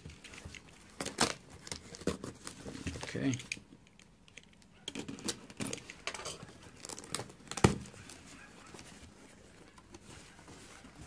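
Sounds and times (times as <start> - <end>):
tape and cardboard tearing: 0.9 - 2.8, 4.9 - 6.0, 6.7 - 8.2.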